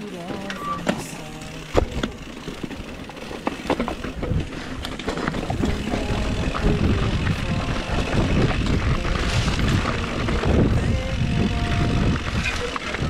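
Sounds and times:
bike clicking and rattling: 0.0 - 13.0
tyres on dirt and rock: 0.0 - 13.0
wind on microphone: 4.1 - 13.0.

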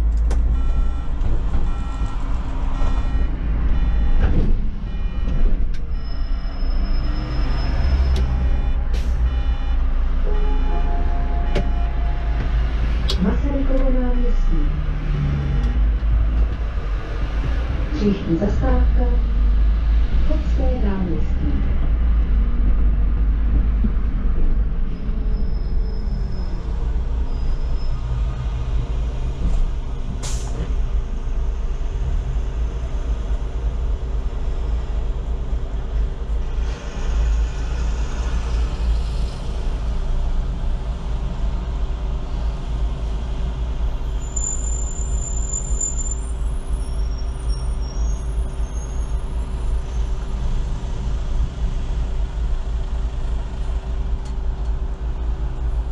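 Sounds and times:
bus engine and road rumble: 0.0 - 55.9.

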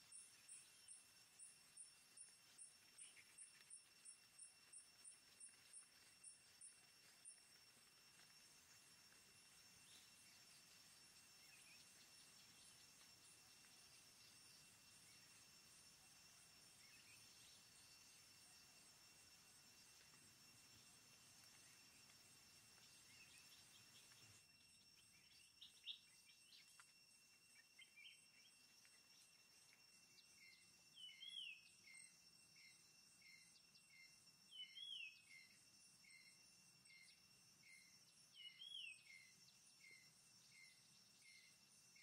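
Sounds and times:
high insect whine: 0.0 - 42.0
bird chirping: 30.1 - 32.7, 37.7 - 41.5.

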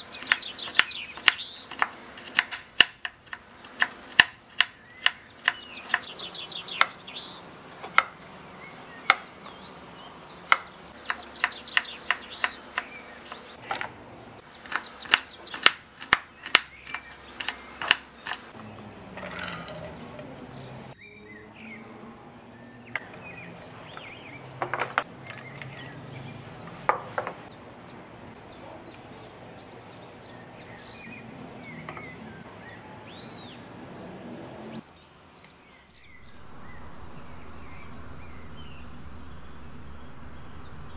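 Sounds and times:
birds chirping: 0.0 - 40.9
knife chopping on wooden board: 0.2 - 6.1, 10.5 - 13.4.

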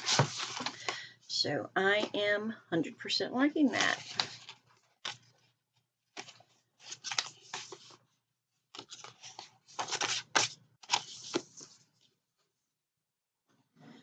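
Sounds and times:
paper rustling and crinkling: 0.0 - 0.9, 3.7 - 5.5, 6.1 - 8.0, 8.7 - 12.1.

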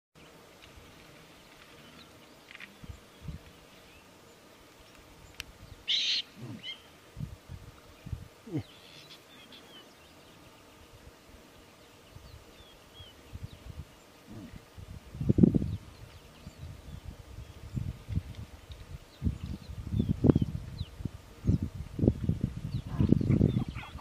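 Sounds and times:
elephant low calls: 5.9 - 6.9, 14.2 - 14.7.

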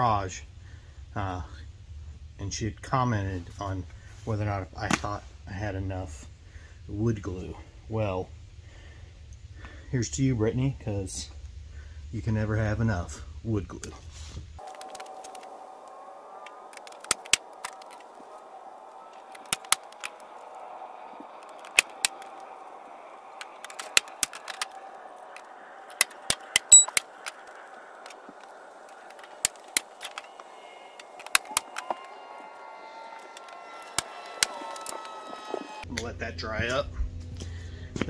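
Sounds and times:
staple gun snaps: 31.2 - 31.8.

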